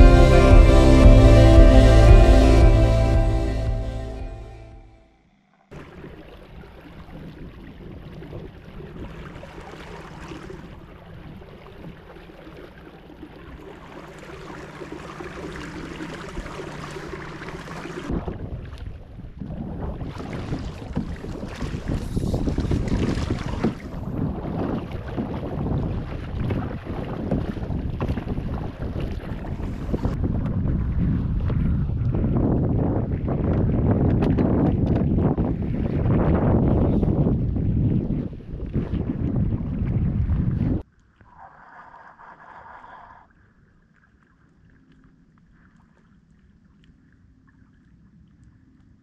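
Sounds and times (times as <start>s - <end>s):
water washing against hull: 5.8s - 40.8s
wind buffeting microphone: 18.1s - 40.8s.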